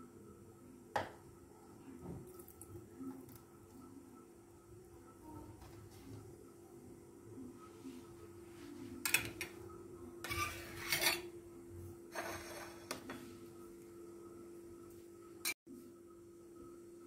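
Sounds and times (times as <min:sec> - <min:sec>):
knife scraping a plate: 0:10.2 - 0:11.3, 0:12.1 - 0:13.2.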